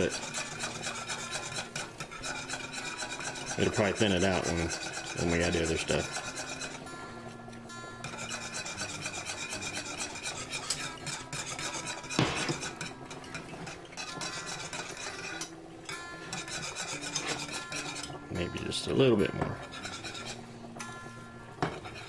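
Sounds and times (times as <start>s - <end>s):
wire whisk scraping a saucepan: 0.0s - 22.0s
sharp knock: 12.2s - 12.6s.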